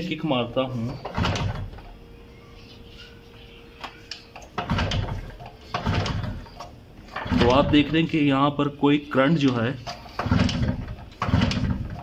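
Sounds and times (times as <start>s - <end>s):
motorcycle engine kick-started: 4.5s - 7.9s, 10.1s - 12.0s.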